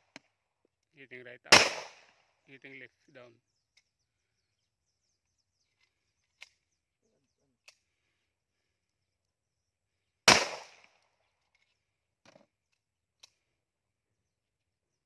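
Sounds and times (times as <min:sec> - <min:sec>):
loud pistol shot: 0:01.5 - 0:02.1, 0:10.3 - 0:10.9.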